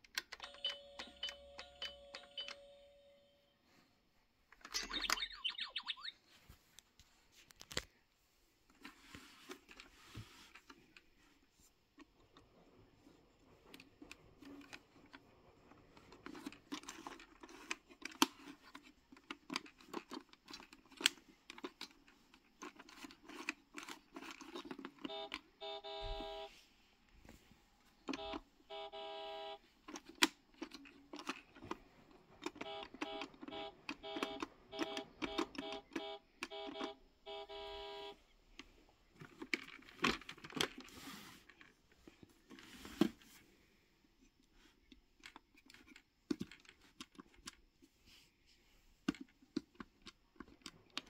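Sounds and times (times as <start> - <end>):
toy electronic beeps: 4.8 - 6.2, 25.1 - 26.5, 32.6 - 38.2.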